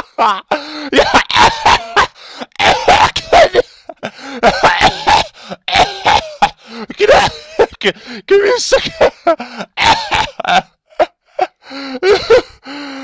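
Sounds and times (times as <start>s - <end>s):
man laughing hard: 0.0s - 12.7s.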